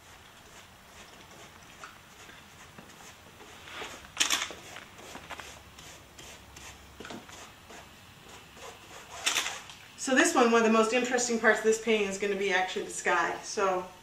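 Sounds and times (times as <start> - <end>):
brush rubbing and scraping: 0.0 - 9.7.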